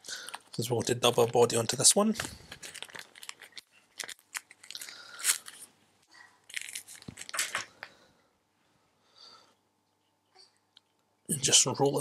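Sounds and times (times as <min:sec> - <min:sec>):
plastic packet rustling and tearing: 0:00.0 - 0:05.7, 0:06.4 - 0:07.7.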